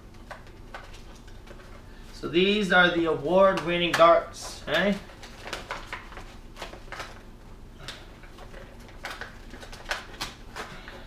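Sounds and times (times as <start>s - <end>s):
cardboard and plastic packaging rustling: 0.0s - 11.0s.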